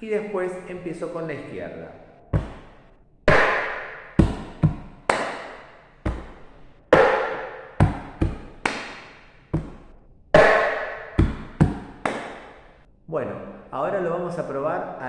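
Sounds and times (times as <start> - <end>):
hands slapping table: 2.4 - 12.7
hands clapping: 3.3 - 6.3, 7.0 - 9.8, 10.4 - 12.6.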